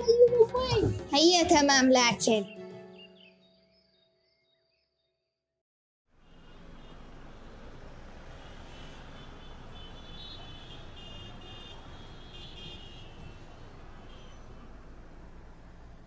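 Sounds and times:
rumble of vehicles: 6.1 - 16.0.

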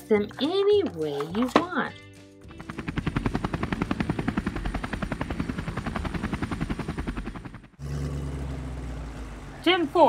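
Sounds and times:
steady low drone: 2.4 - 9.6
helicopter rotor chopping: 2.4 - 10.0.

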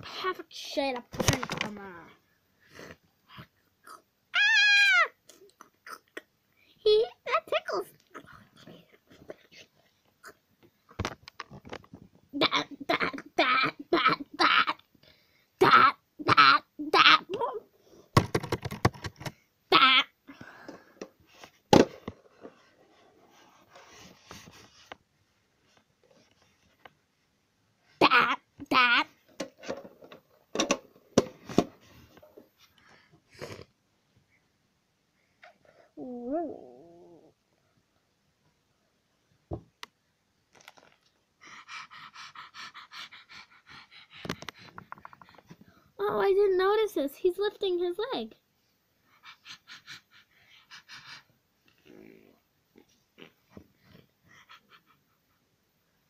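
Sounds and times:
plastic toy clicks and knock: 18.2 - 19.4, 29.4 - 31.7
child vocal sound: 36.0 - 37.4
person panting like a dog: 41.4 - 46.0, 49.0 - 51.4, 53.8 - 55.6.

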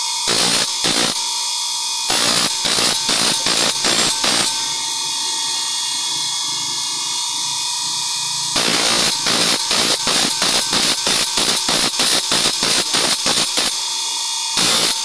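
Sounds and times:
bench grinder whine: 0.0 - 15.0
saw teeth grinding rasps: 2.1 - 13.8.

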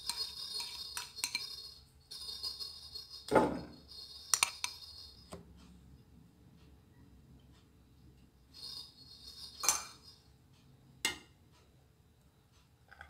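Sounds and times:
utensil clinking on ceramic dish: 0.0 - 5.4, 8.6 - 10.2.

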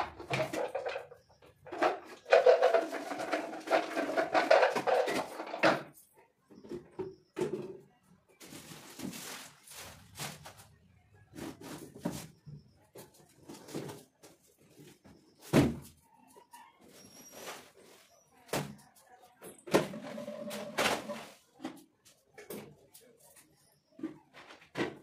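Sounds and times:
kitchen items rustling: 0.0 - 25.0.

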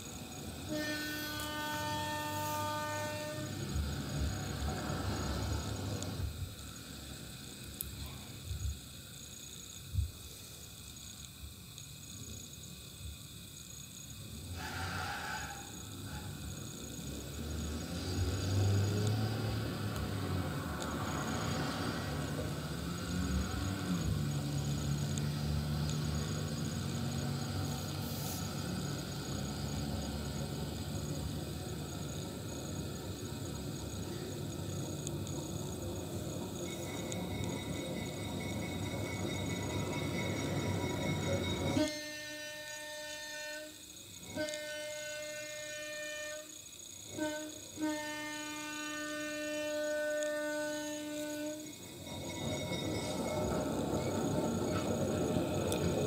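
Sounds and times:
locomotive engine low drone: 0.0 - 9.0, 14.2 - 43.1, 48.5 - 56.0
locomotive air horn blasts: 0.6 - 5.6, 14.6 - 16.2, 41.6 - 51.8.

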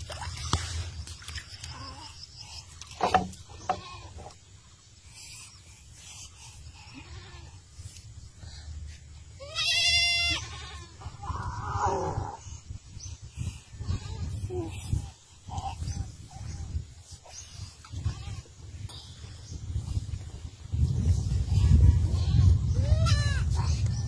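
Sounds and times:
knocks and rustles: 2.9 - 4.0
bleating animal call: 9.4 - 11.4.

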